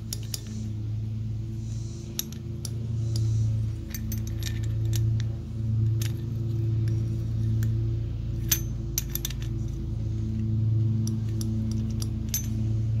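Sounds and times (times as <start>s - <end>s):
small metallic clicks and clinks: 0.0s - 0.7s, 2.1s - 7.8s, 8.4s - 9.8s, 10.4s - 12.8s
steady low hum: 0.0s - 13.0s.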